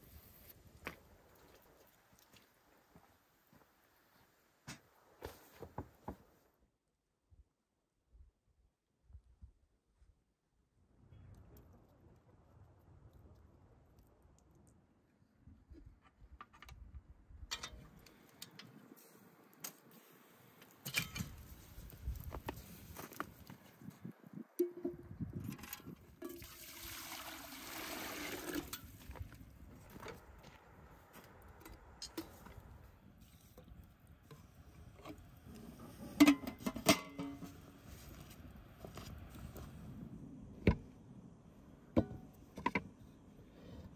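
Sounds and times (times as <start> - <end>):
clicks and knocks of embers: 17.5 - 26.1
metal lid clanking on pot: 36.2 - 37.5.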